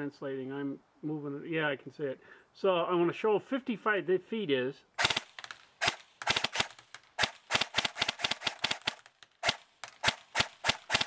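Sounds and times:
airsoft gun firing clicks: 5.0 - 11.0.

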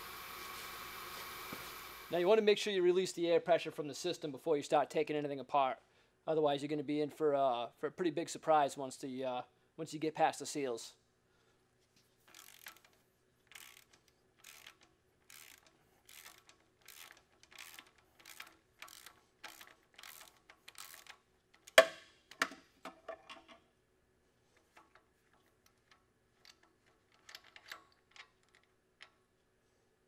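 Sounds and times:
hand ratchet clicking: 12.3 - 21.9, 24.6 - 29.2.

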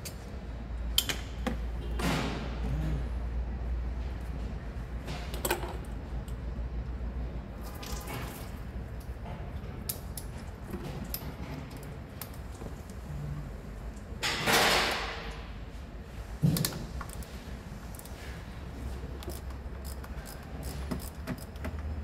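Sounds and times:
tools clicking and clinking: 19.2 - 22.0.

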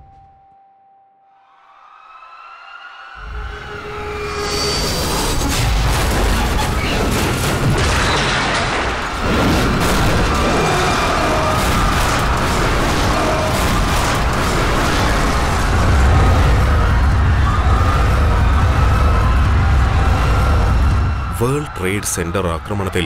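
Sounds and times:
loud rumbling noise: 3.2 - 21.7
explosion boom: 5.4 - 21.3.

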